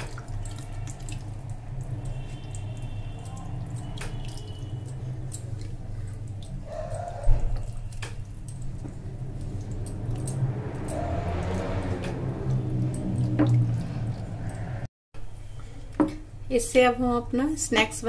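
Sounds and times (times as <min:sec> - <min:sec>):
water pouring into bowl: 0:00.0 - 0:06.7.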